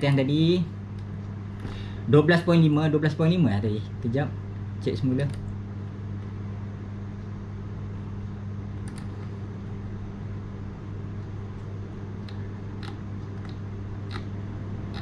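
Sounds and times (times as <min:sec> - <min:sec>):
low electrical hum: 0:00.0 - 0:15.0
computer key clicks: 0:08.8 - 0:09.3.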